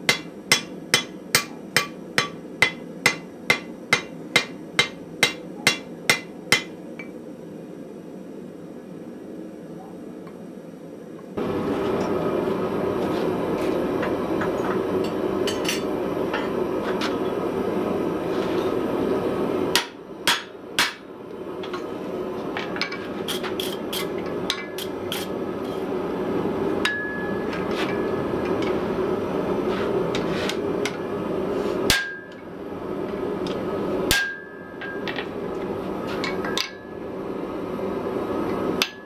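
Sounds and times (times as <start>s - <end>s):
hammer striking hot steel on anvil: 0.0s - 7.2s, 14.0s - 17.4s, 19.7s - 21.1s, 22.6s - 25.9s, 26.8s - 28.8s, 31.8s - 32.4s, 33.5s - 35.3s, 36.2s - 36.9s, 38.8s - 39.0s
gas forge humming: 0.0s - 39.0s.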